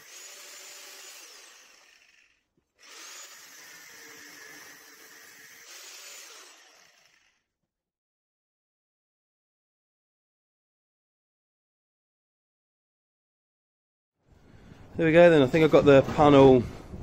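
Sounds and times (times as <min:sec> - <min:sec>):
angle grinder grinding metal: 0:00.0 - 0:07.5.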